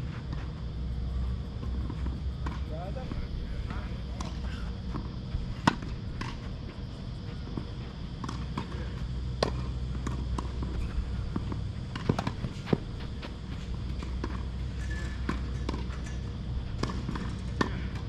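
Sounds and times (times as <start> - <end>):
tennis ball bouncing on court: 4.1 - 6.4, 7.5 - 10.7, 11.3 - 14.5, 16.8 - 17.8.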